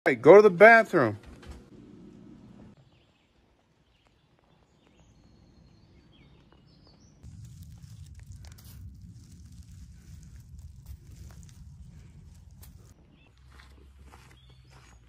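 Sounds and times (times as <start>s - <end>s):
bird chirps: 2.8s - 7.2s, 13.0s - 15.0s
low steady rumble: 7.2s - 14.2s.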